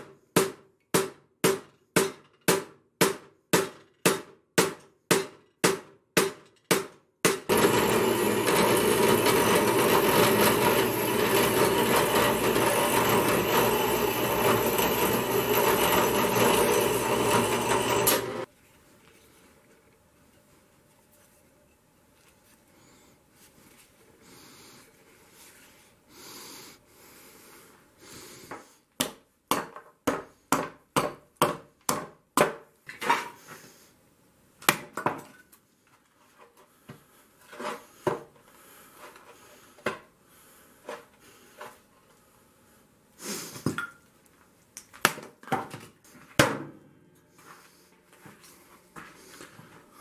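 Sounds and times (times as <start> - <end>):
hatchet chopping wood: 0.0 - 7.6, 29.0 - 32.7, 34.6 - 35.2.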